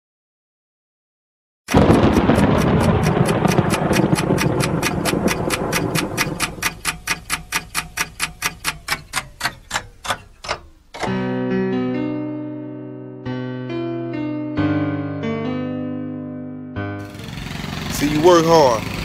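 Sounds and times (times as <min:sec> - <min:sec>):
clock-like ticking: 0:01.7 - 0:11.2
loud rushing noise: 0:17.0 - 0:19.0.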